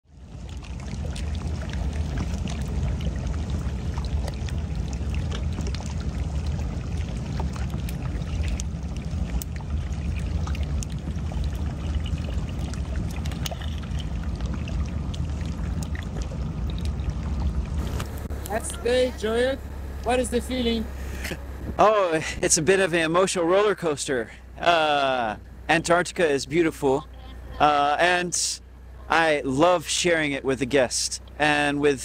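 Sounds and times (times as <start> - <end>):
steady low rumble: 0.0 - 32.0
water splashing among ice: 0.1 - 18.6.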